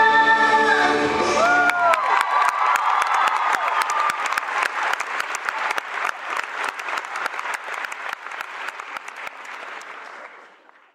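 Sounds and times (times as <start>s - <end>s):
audience applauding: 1.4s - 10.9s.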